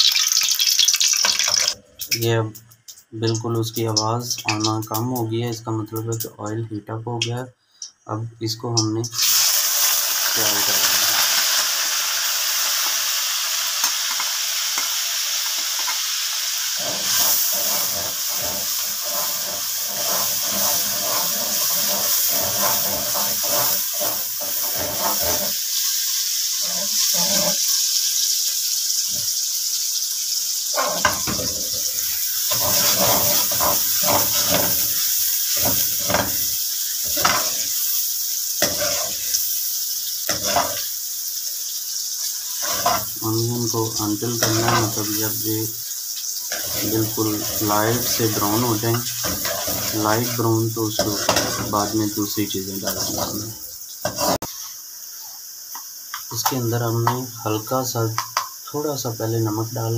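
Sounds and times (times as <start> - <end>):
onions sizzling in hot oil: 0.0 - 5.2, 8.8 - 59.9
metal spoon scraping a pan: 16.8 - 26.0, 26.6 - 27.9, 30.7 - 38.0, 38.6 - 39.4, 40.2 - 40.9, 42.5 - 43.2, 44.0 - 45.5, 46.4 - 54.7.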